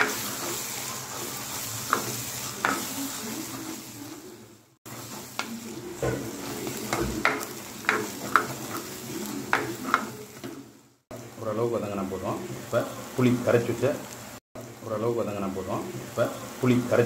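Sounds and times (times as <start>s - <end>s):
spices sizzling in oil: 0.0s - 17.0s
spatula scraping and knocking pot: 5.4s - 10.5s.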